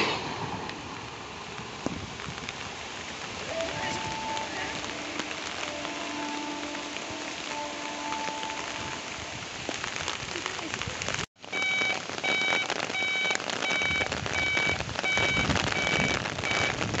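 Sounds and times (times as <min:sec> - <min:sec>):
steady rain falling on road: 0:00.0 - 0:17.0
high electronic warning beeps: 0:11.5 - 0:16.8.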